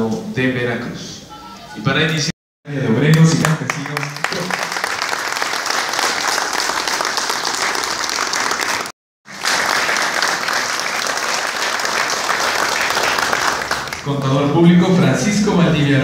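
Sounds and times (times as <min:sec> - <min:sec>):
audience applauding: 0:03.0 - 0:14.6.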